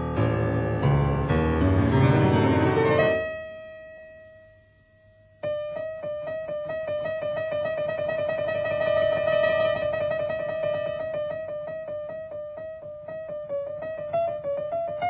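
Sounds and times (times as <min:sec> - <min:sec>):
solo piano music: 0:00.0 - 0:15.0.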